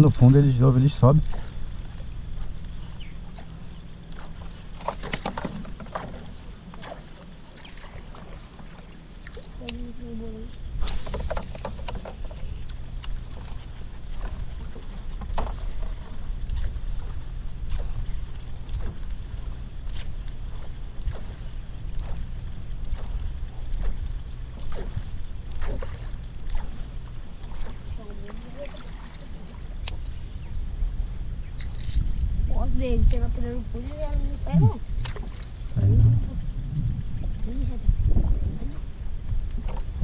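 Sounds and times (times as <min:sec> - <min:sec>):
paddle knocking against hull: 0:11.0 - 0:12.4
low rumble: 0:35.6 - 0:39.4.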